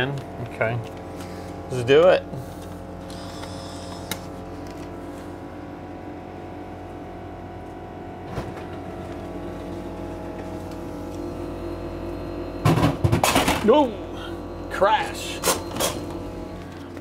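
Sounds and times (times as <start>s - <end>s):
vending machine humming: 0.0s - 17.0s
vending machine clunk: 12.6s - 13.9s, 15.3s - 16.3s.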